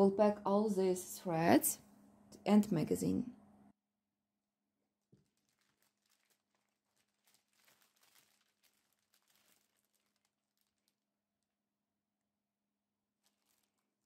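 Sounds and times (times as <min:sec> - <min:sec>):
plastic bags crinkling: 0:05.0 - 0:11.2, 0:13.1 - 0:14.0.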